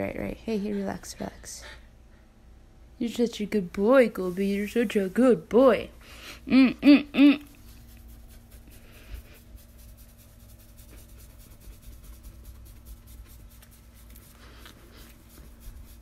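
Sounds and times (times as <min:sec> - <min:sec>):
faint steady hum: 0:00.0 - 0:16.0
hand petting dog's coat: 0:07.6 - 0:16.0.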